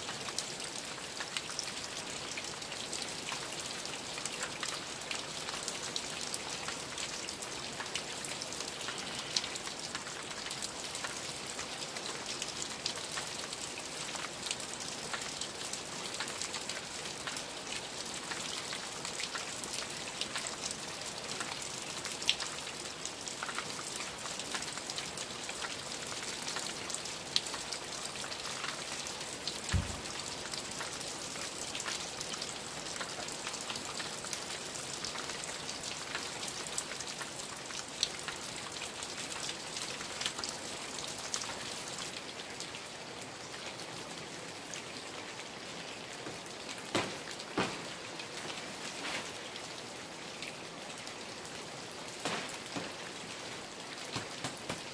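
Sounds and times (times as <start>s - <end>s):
steady rain falling: 0.0s - 54.9s
low thump: 29.7s - 30.1s.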